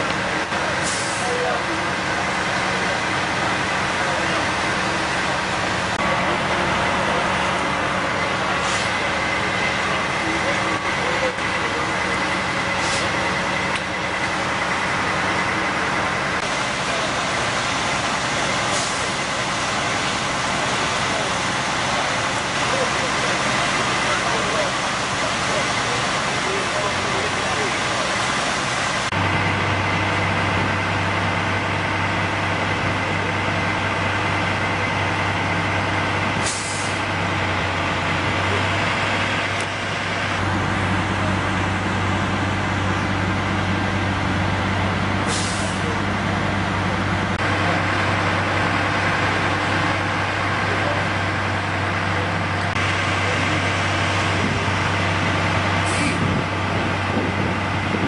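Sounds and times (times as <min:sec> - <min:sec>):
diesel engine idling: 0:00.0 - 0:58.0
air brake hisses: 0:12.8 - 0:13.1, 0:36.4 - 0:37.0, 0:45.3 - 0:45.9, 0:55.8 - 0:56.2.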